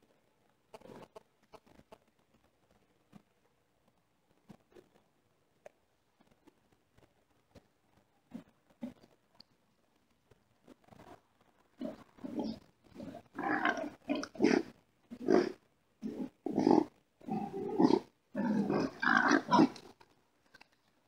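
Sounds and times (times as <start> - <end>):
wild boars calling: 11.8 - 19.9.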